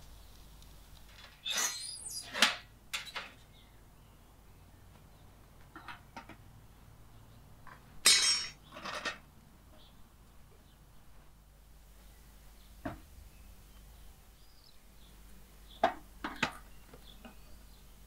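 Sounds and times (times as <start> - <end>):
dishes and utensils clinking: 8.0 - 9.2.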